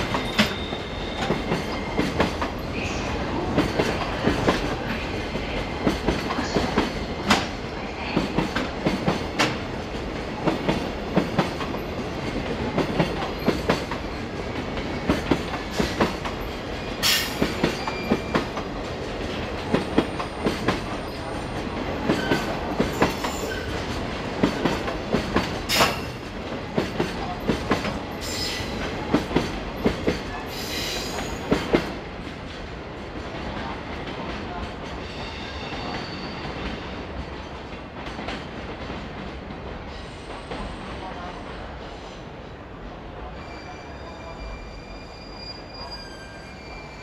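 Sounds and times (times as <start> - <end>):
train wheels clattering over rail joints: 22.0 - 31.9.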